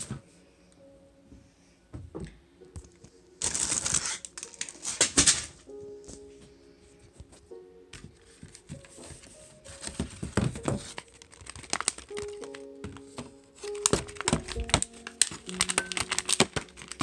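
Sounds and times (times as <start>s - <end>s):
background music: 0.0s - 17.0s
packaging rustling and crackling: 3.0s - 5.7s, 8.2s - 17.0s.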